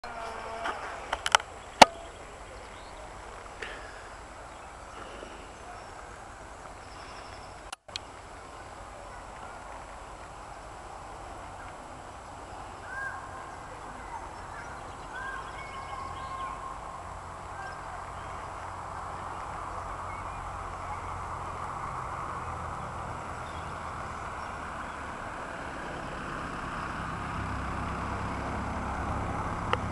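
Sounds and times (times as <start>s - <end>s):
bird calls: 0.0s - 7.7s, 10.4s - 25.2s
faint outdoor hiss: 0.0s - 29.9s.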